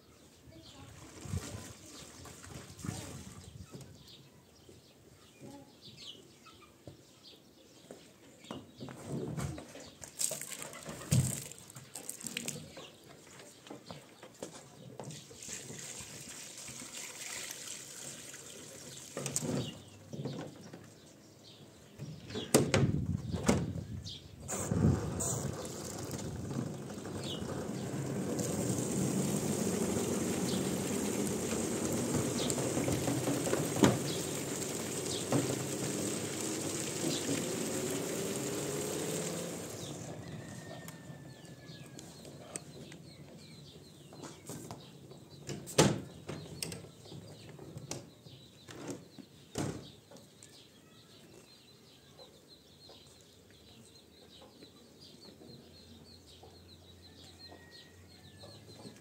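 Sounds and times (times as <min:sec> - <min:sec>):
water pouring into tub: 0:15.4 - 0:19.4, 0:25.4 - 0:40.3.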